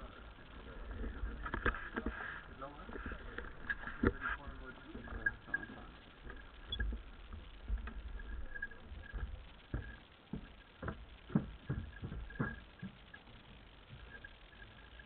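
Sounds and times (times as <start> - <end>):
light knocks and clicks: 2.9 - 13.2.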